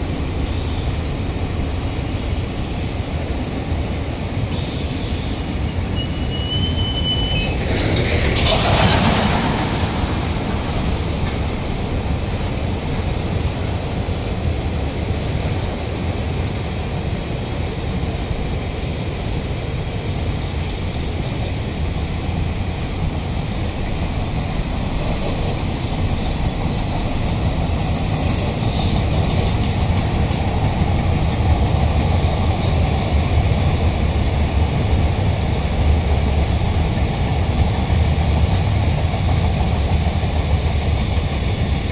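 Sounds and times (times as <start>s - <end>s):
train wheels rumbling on track: 0.0s - 41.9s
high wheel squeals: 4.6s - 7.7s.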